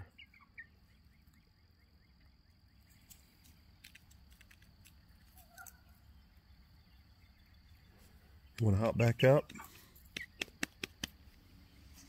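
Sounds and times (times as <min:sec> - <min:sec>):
soft chirp: 0:00.0 - 0:03.6, 0:05.2 - 0:08.6.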